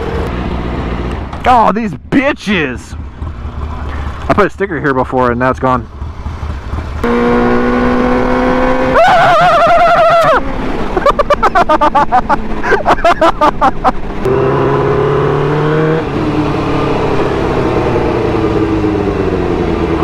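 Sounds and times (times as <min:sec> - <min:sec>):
motorcycle engine running: 0:02.9 - 0:08.9.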